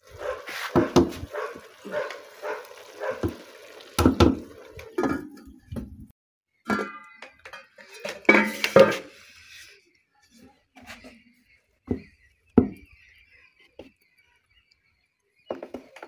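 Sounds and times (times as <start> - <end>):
pot and lid clanking: 4.0 - 5.6, 6.7 - 9.1.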